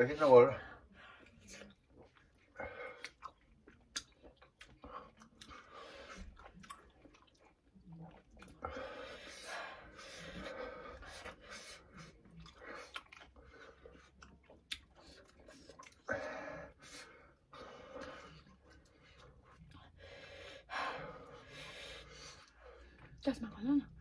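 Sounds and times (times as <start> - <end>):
person chewing food: 0.8 - 23.2
wet mouth clicks: 3.0 - 5.5, 14.1 - 16.0.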